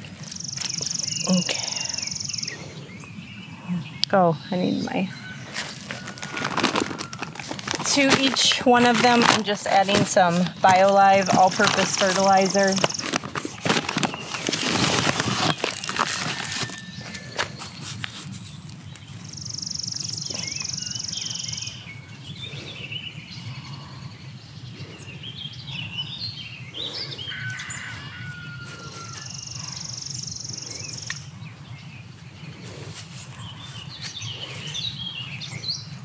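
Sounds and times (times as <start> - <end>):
birds chirping: 0.0 - 36.0
bird trilling: 24.8 - 31.4.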